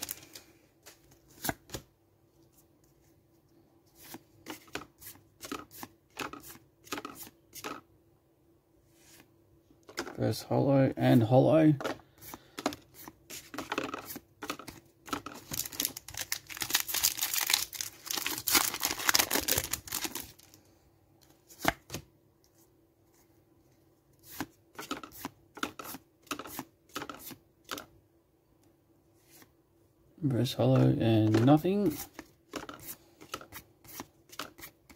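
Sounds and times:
trading cards sliding and flicking: 0.8 - 1.8, 3.9 - 7.8, 11.9 - 15.2, 24.2 - 27.8, 30.8 - 34.9
foil wrapper tearing and crinkling: 15.5 - 20.6.

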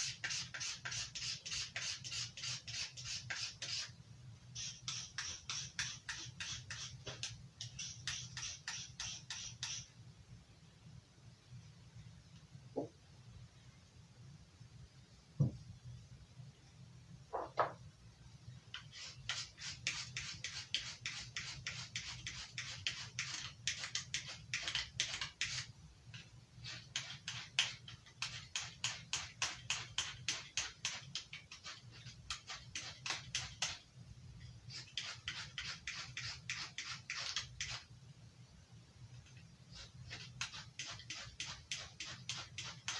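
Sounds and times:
knife scraping on sharpener: 0.2 - 3.9, 4.6 - 9.9, 34.7 - 37.8.

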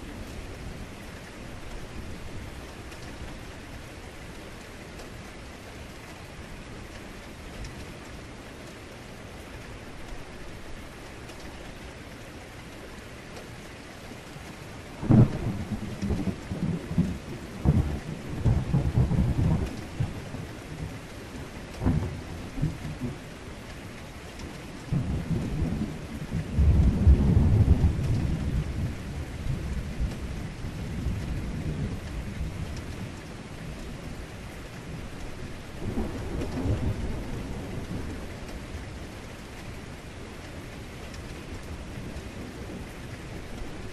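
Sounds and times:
heavy rain falling: 0.0 - 43.9
thunder rumbling: 15.0 - 23.2, 24.7 - 40.4.

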